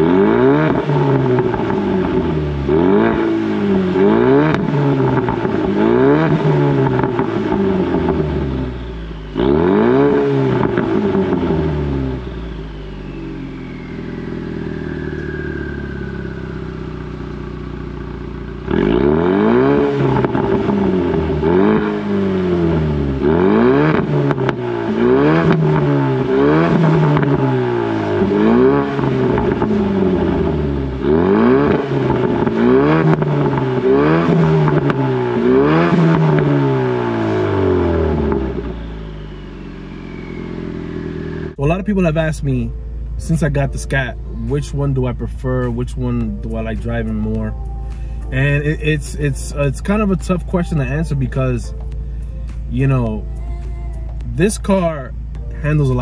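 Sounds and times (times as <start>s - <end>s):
car engine revving: 0.0s - 56.0s
turbo whistle: 11.9s - 16.8s, 38.5s - 41.5s.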